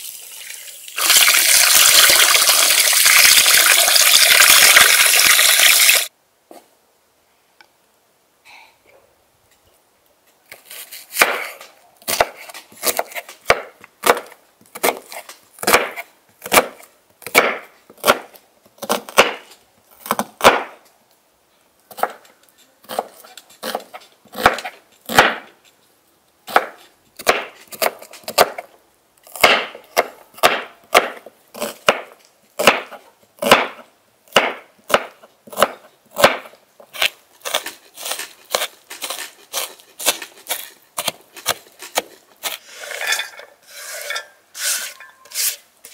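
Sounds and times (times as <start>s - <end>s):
knife chopping onion on board: 11.1s - 19.4s, 20.0s - 20.8s, 22.8s - 25.5s, 26.5s - 28.7s, 29.3s - 42.6s.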